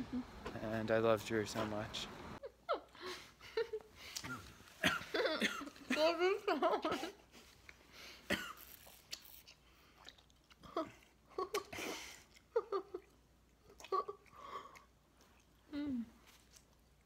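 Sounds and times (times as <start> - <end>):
person chewing: 8.6 - 17.0.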